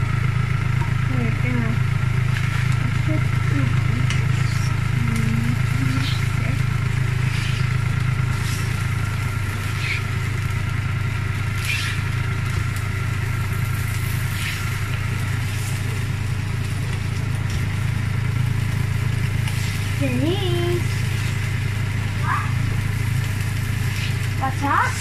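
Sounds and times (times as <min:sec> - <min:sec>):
steady low hum: 0:00.0 - 0:25.0
spatula scraping frying pan: 0:05.6 - 0:10.3.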